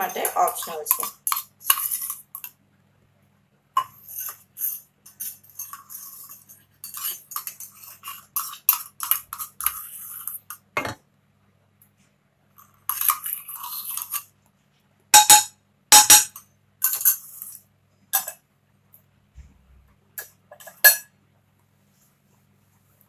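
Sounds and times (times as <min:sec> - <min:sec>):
metal spoon clinking on containers: 0:00.0 - 0:02.6, 0:03.8 - 0:11.0, 0:12.6 - 0:14.3, 0:15.2 - 0:17.6, 0:18.2 - 0:18.4, 0:20.2 - 0:21.1.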